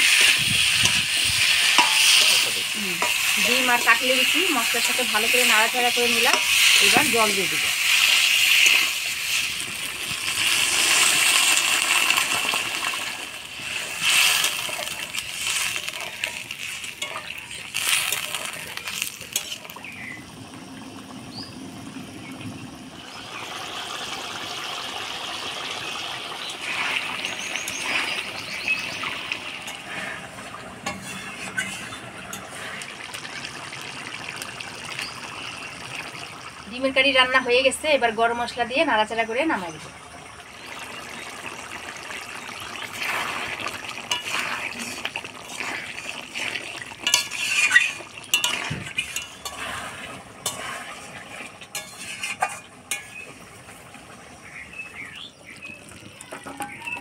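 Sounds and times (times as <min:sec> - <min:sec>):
gravy simmering: 0:00.0 - 0:57.0
water sizzling in hot wok: 0:00.0 - 0:57.0
metal spatula clinking on wok: 0:01.7 - 0:03.4, 0:15.8 - 0:17.5, 0:47.0 - 0:49.6, 0:51.7 - 0:53.2.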